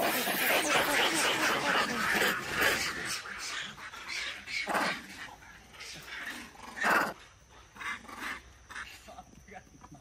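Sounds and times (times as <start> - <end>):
macaques calling: 0.0 - 9.1.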